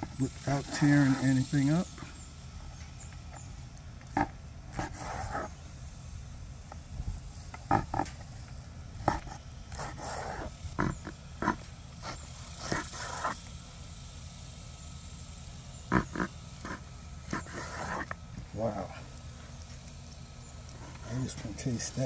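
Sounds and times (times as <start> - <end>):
knife sawing through ribs: 0.0 - 2.2, 4.1 - 5.6, 9.0 - 13.5, 15.9 - 19.1, 20.7 - 22.0
steady low rumble: 0.0 - 17.5.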